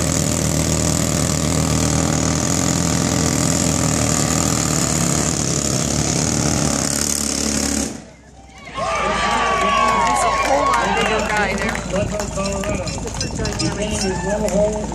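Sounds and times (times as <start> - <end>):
rock drill running: 0.0 - 8.0.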